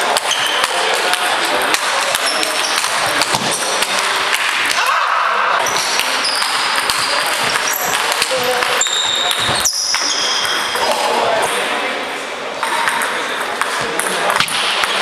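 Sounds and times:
short high squeaks: 8.8 - 10.8.

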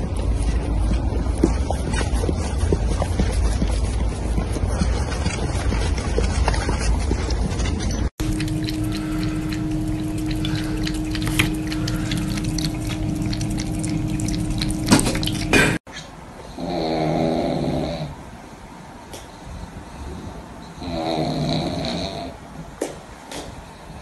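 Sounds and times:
low hum: 0.0 - 15.8
running splashing water: 0.0 - 15.8
dog snoring: 16.5 - 18.2, 20.8 - 22.4.

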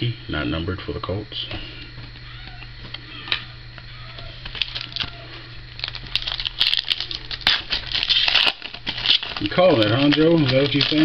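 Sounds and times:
foil wrapper crinkling and tearing: 4.4 - 11.0.

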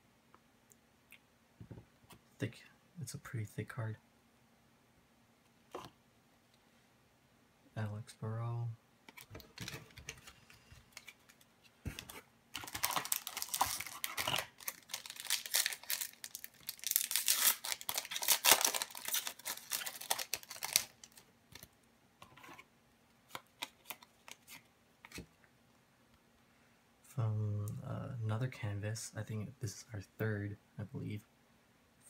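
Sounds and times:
foil wrapper crinkling and tearing: 12.6 - 21.7.

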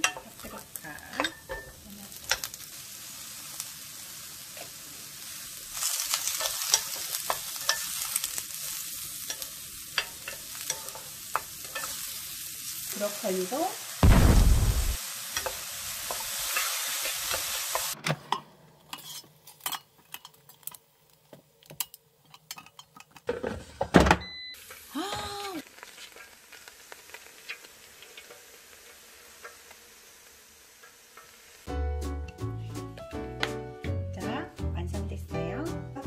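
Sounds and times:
vegetables sizzling in a frying pan: 0.0 - 18.0, 24.3 - 32.7
thumps: 14.0 - 15.0.

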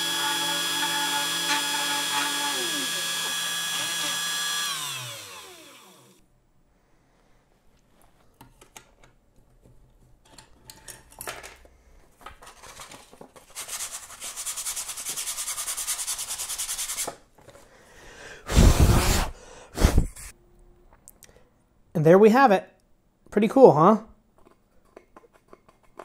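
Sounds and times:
sandpaper sanding wood: 0.0 - 5.2, 13.5 - 17.2.

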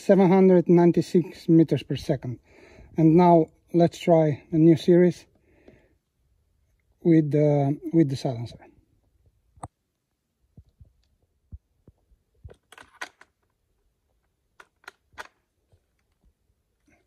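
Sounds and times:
faint handling clicks and knocks: 10.5 - 17.0.

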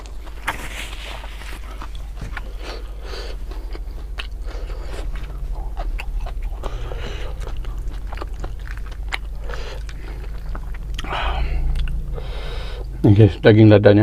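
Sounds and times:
close chewing with mouth clicks: 0.0 - 12.0
steady low hum: 0.0 - 14.0.

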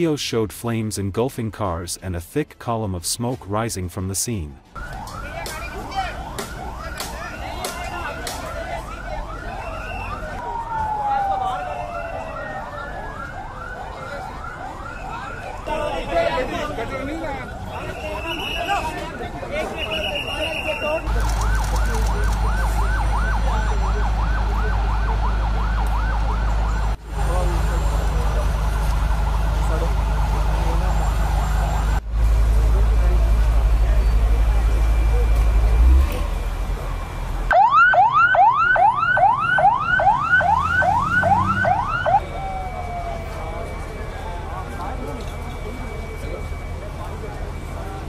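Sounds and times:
siren yelping: 4.8 - 27.0, 37.5 - 48.0
voices: 5.1 - 48.0.

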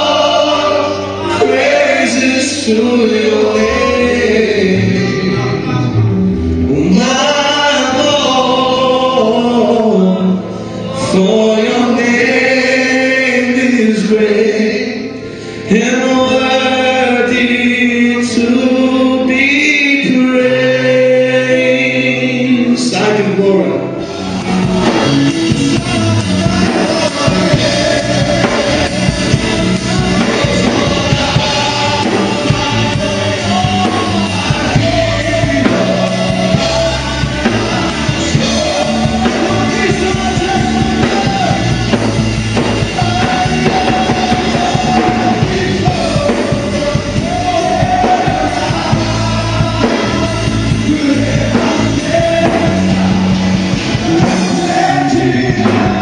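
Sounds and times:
drum kit: 0.0 - 10.2, 22.8 - 56.0
congregation singing: 0.0 - 56.0.

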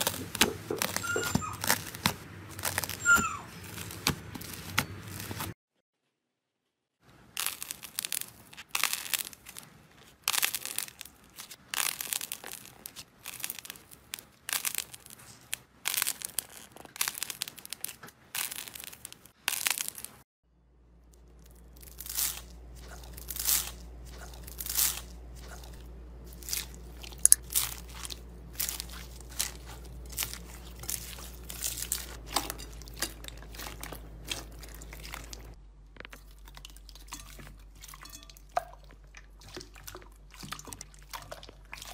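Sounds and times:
hand pressing foam beads: 0.0 - 5.5, 7.3 - 20.2
slime crackly crunches: 0.0 - 5.6, 7.3 - 20.2, 21.1 - 37.9
low steady hum: 20.5 - 41.9.

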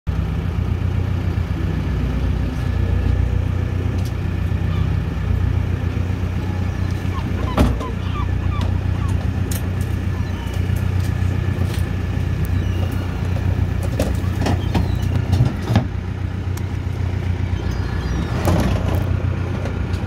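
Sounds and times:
boat engine drone: 0.1 - 20.0
hydraulic pot hauler running: 0.1 - 20.0
short squeaks: 12.4 - 15.8.

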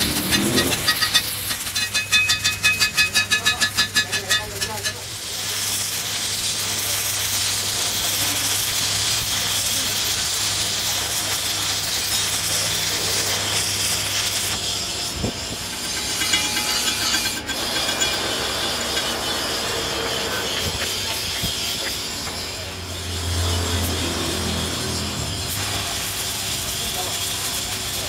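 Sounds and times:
chipping hammer tapping metal: 0.0 - 5.1, 10.7 - 22.6
welding arc crackling and hissing: 0.0 - 28.0.

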